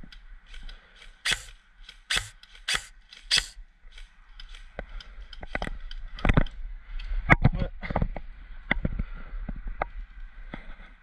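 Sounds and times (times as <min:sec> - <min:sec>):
airsoft rifle shots: 0:01.2 - 0:03.6.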